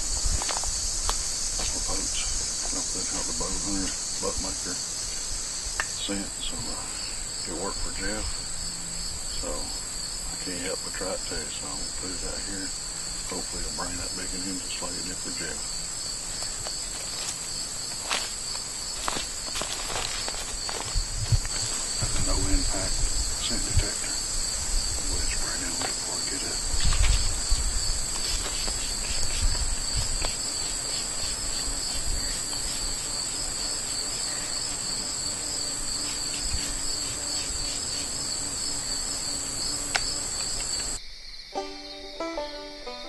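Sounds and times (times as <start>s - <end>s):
insects chorus: 0.0s - 43.0s
banjo music: 41.6s - 43.0s.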